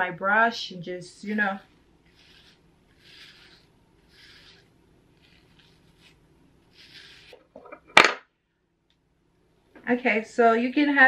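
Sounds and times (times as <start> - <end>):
hairbrush scraping through hair: 1.1 - 7.4.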